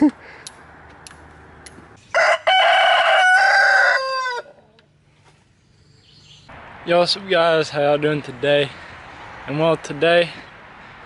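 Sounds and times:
rooster crowing: 0:02.1 - 0:04.7.

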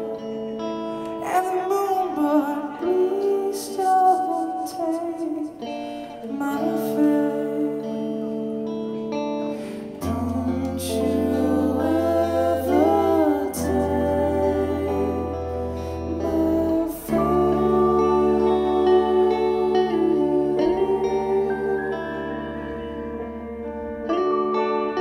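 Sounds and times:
electric guitar chords: 0:00.0 - 0:25.0
bass guitar: 0:05.5 - 0:25.0.

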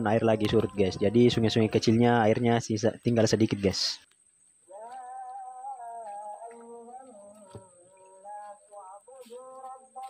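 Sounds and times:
person humming a slow tune: 0:04.6 - 0:10.0.

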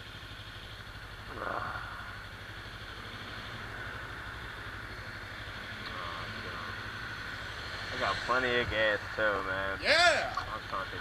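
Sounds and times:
motorcycle engine running: 0:00.0 - 0:07.9.

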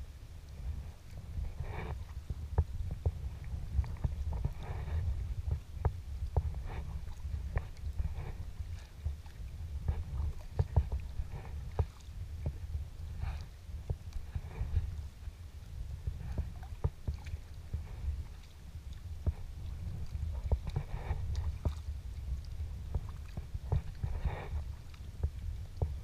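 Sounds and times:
steady low rumble: 0:00.0 - 0:26.0
paddle water splashes: 0:00.3 - 0:26.0.

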